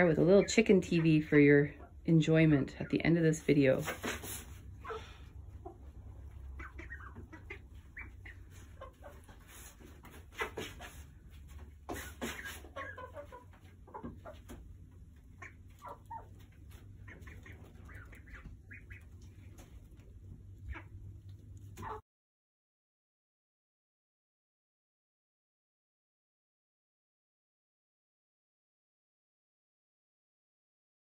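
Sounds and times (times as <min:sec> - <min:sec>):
hens clucking: 0:00.0 - 0:22.0
steady low hum: 0:13.5 - 0:21.8.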